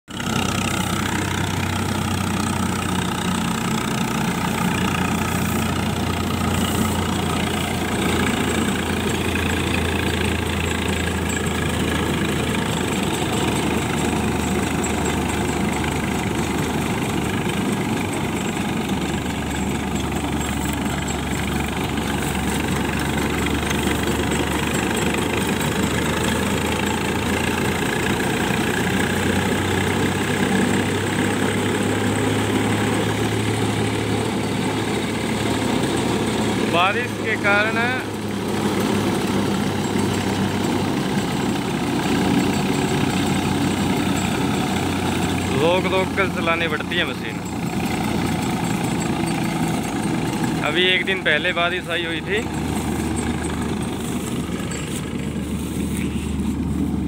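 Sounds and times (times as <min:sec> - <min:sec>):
tractor diesel engine running: 0:00.0 - 0:57.0
reaper machinery working: 0:00.2 - 0:57.0.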